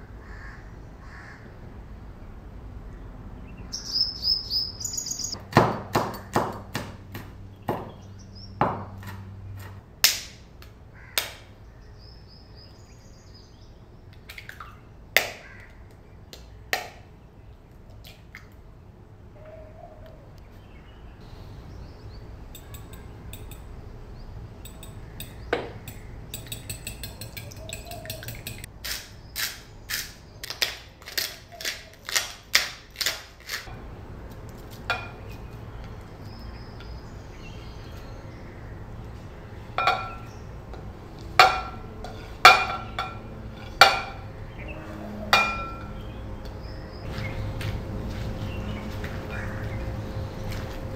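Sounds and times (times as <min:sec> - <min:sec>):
dishware clinking on glass bowl: 0:24.6 - 0:28.7, 0:39.8 - 0:40.3, 0:41.4 - 0:44.3, 0:45.3 - 0:46.0
fork beating eggs: 0:24.6 - 0:29.5
pepper mill crunching: 0:26.4 - 0:34.9.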